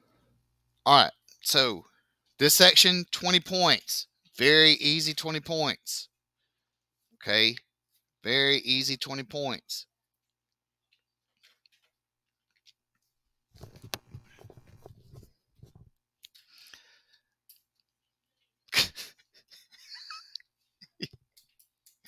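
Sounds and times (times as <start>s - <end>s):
microphone rustling and rubbing: 13.5s - 16.0s.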